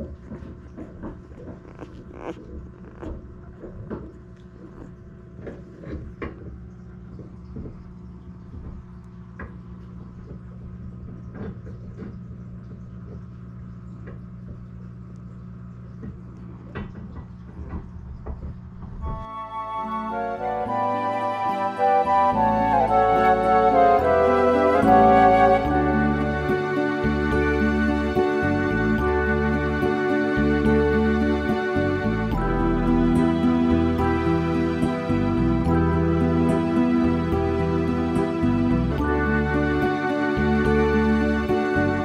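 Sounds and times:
steady low hum: 0:00.0 - 0:21.3, 0:22.2 - 0:42.0
puppies squeaking and snuffling: 0:01.1 - 0:03.3, 0:04.1 - 0:05.7
music: 0:19.0 - 0:42.0.

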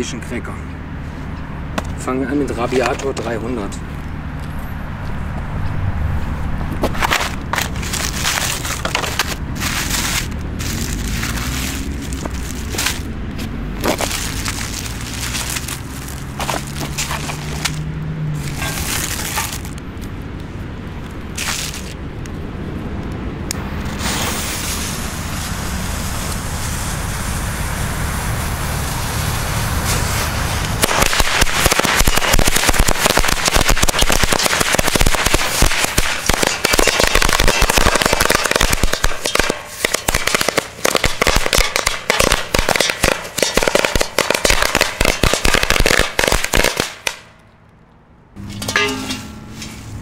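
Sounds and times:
firecracker string bangs: 0:30.8 - 0:47.3.

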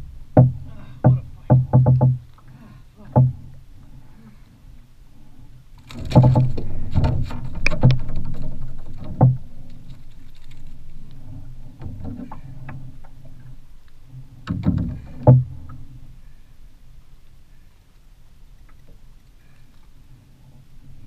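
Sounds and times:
water lapping against boat hull: 0:00.0 - 0:21.0
knocks against boat: 0:00.4 - 0:02.2, 0:03.0 - 0:03.5, 0:06.0 - 0:08.2, 0:09.0 - 0:09.4, 0:14.4 - 0:15.8.

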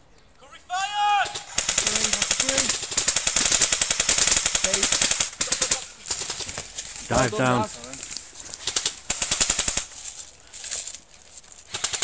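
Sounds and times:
person shouting: 0:00.7 - 0:01.4
rifles firing full auto: 0:01.3 - 0:06.7, 0:08.6 - 0:09.9, 0:11.7 - 0:12.0.

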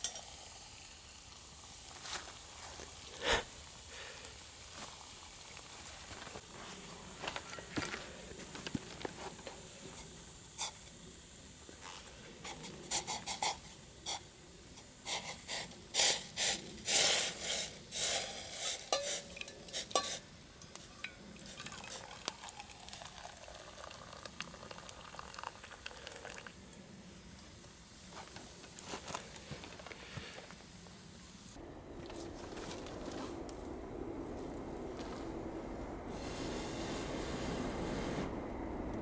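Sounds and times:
wood fire crackling: 0:00.0 - 0:39.0
water pouring into metal cup: 0:20.9 - 0:26.6.

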